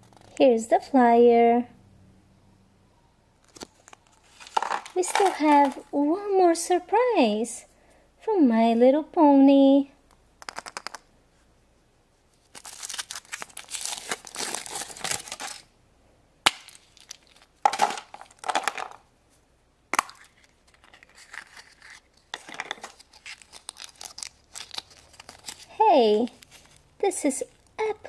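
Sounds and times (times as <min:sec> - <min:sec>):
chocolate snapping: 0:10.4 - 0:11.1, 0:16.4 - 0:19.0, 0:19.9 - 0:21.6
foil wrapper crinkling: 0:12.4 - 0:15.7, 0:16.6 - 0:18.5, 0:20.2 - 0:26.9.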